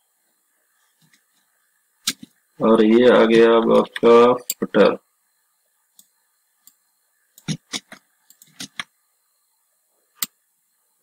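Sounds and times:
keyboard and mouse clicks: 0:07.4 - 0:08.9.

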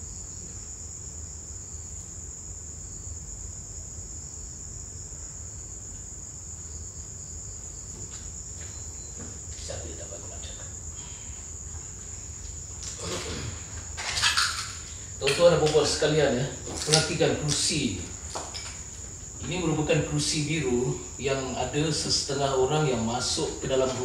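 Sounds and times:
crickets chirring: 0:00.0 - 0:24.0
faint knocks and rustles: 0:07.8 - 0:10.0.

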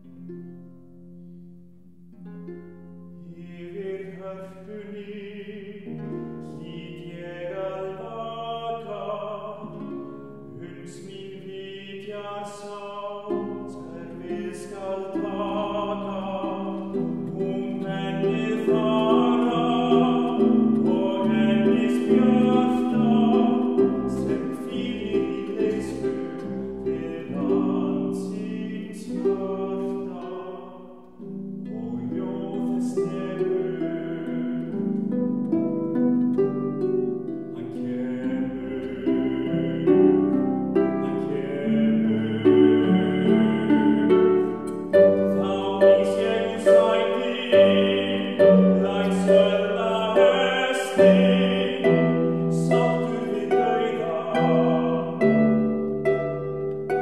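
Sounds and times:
bass-baritone voice singing: 0:03.2 - 0:34.8, 0:37.5 - 0:57.0
plucked harp notes: 0:13.2 - 0:57.0.

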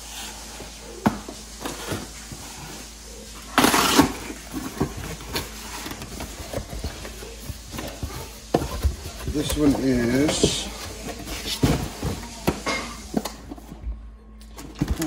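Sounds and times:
packing tape tearing: 0:03.6 - 0:06.7.

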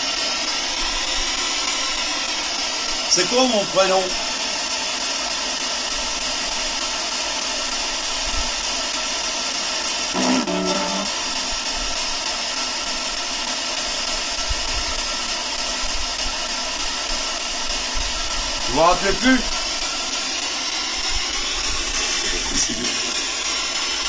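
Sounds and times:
loud steady hiss: 0:00.0 - 0:24.0
brief pitched tone: 0:10.2 - 0:11.2.

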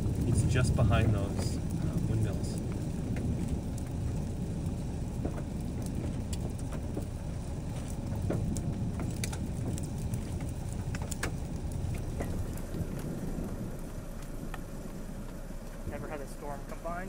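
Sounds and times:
low wind rumble on microphone: 0:00.0 - 0:17.0
raindrops ticking: 0:00.0 - 0:17.0.

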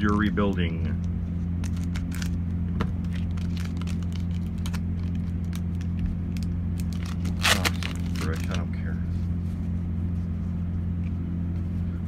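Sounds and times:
steady low hum: 0:00.0 - 0:12.0
foil wrapper crinkling: 0:01.5 - 0:02.4, 0:03.0 - 0:08.8.

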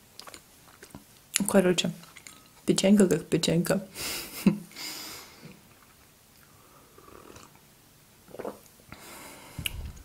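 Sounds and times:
sipping hot tea: 0:08.3 - 0:08.7
quiet mouth sounds: 0:09.5 - 0:10.0.

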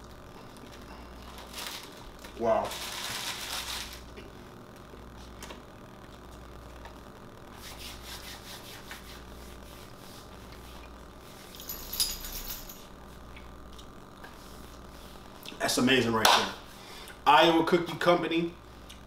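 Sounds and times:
faint low hum: 0:00.0 - 0:19.0
palms rubbing together: 0:07.5 - 0:11.4.

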